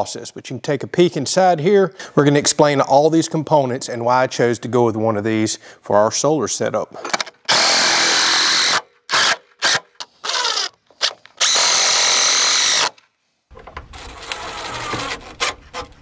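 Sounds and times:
clicks and handling noise: 7.0s - 7.5s, 10.0s - 11.5s
cordless drill driving screws: 7.5s - 13.0s.

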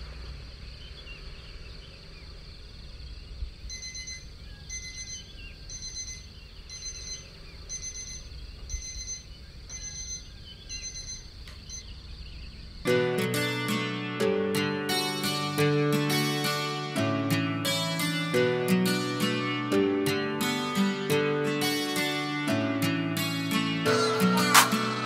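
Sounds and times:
alarm clock beeping: 3.7s - 11.9s.

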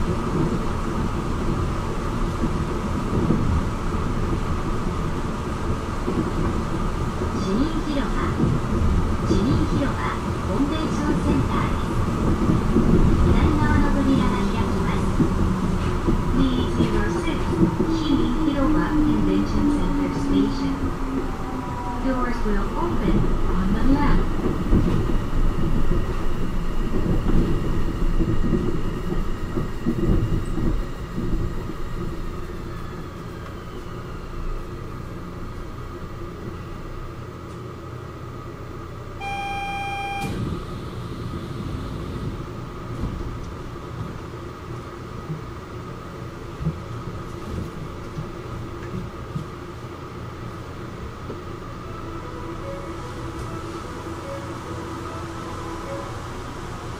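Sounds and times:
low steady train hum: 0.0s - 56.9s
train running rumble: 0.0s - 56.9s
electronic beep: 39.0s - 40.6s.

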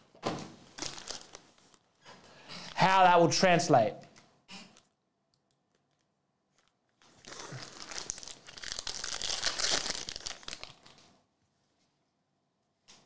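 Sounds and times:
foil wrapper tearing and crinkling: 0.8s - 1.8s, 5.8s - 11.0s.

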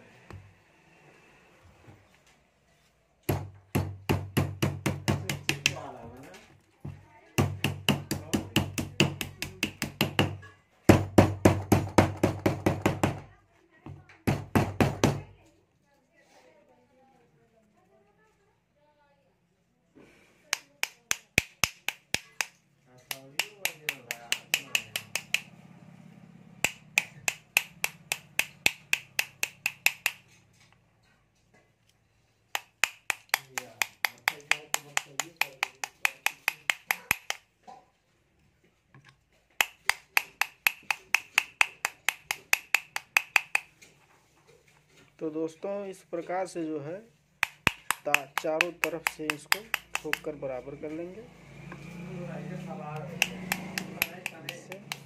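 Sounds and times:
small hammer tapping steel: 4.4s - 5.9s, 20.5s - 25.5s, 26.6s - 30.7s, 32.5s - 37.5s, 39.5s - 43.9s, 47.4s - 50.4s, 53.0s - 55.0s.

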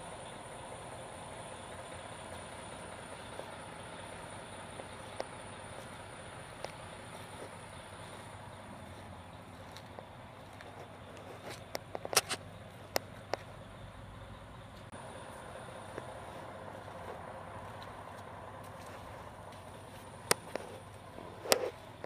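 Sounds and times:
vehicle engine running: 0.0s - 22.0s.

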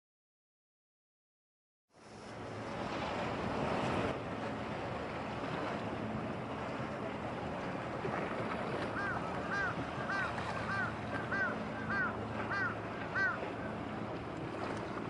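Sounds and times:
water noise: 1.9s - 15.0s
bird calling: 8.8s - 13.8s.

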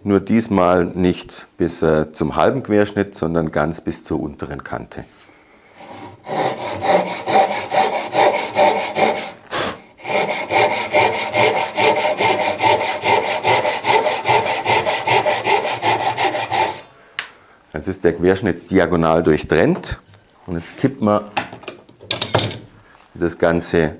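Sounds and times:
hand saw cutting wood: 5.8s - 16.9s.

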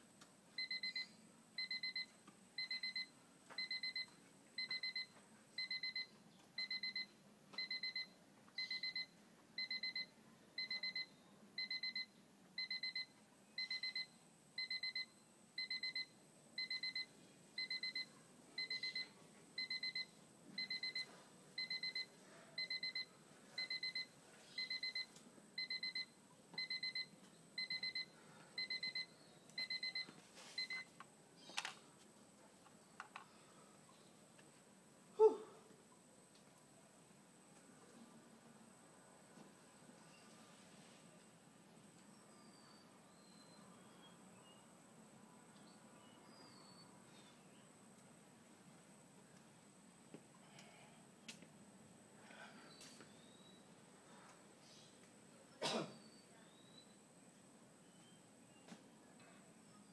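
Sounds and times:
electronic timer beeping: 0.6s - 30.9s.

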